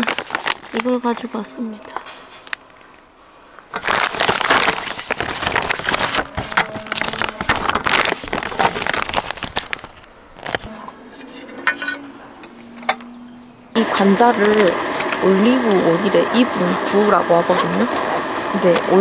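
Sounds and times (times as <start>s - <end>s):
packaging crinkling: 0.0s - 2.6s, 3.7s - 10.7s, 17.4s - 19.0s.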